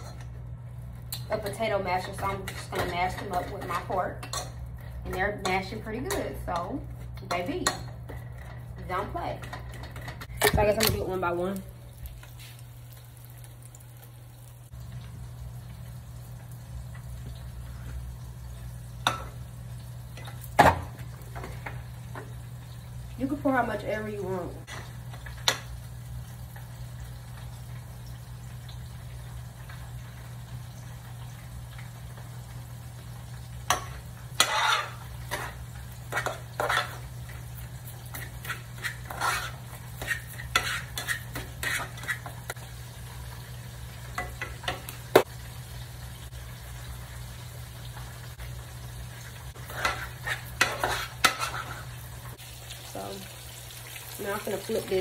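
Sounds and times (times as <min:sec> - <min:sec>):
meat frying in oil: 0:10.2 - 0:55.0
fork scraping a saucepan: 0:34.4 - 0:37.0, 0:38.1 - 0:42.5, 0:49.6 - 0:52.0.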